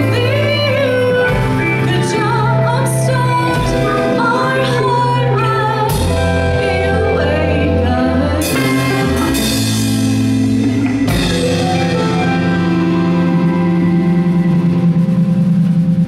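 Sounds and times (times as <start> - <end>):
woman singing: 0.0 - 9.6
live rock band playing: 0.0 - 16.0.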